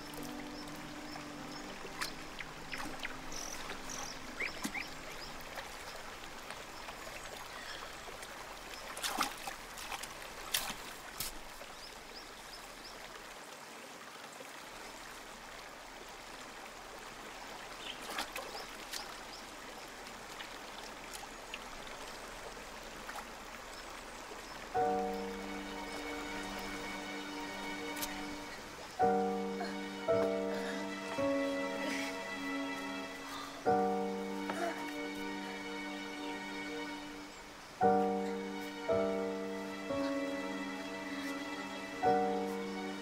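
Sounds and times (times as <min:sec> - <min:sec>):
stream trickling over rocks: 0:00.0 - 0:43.0
short sharp splashes: 0:08.9 - 0:11.4.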